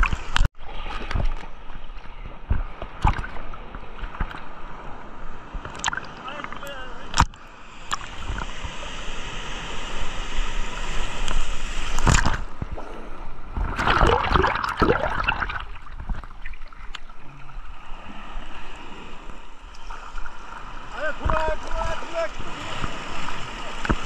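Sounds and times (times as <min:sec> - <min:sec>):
surf rushing against microphone: 0:05.7 - 0:12.8, 0:19.8 - 0:24.0.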